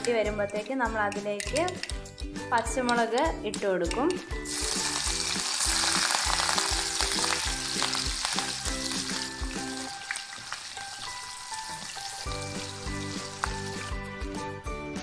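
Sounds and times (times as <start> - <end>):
chillies sizzling in hot oil: 4.4 - 14.1.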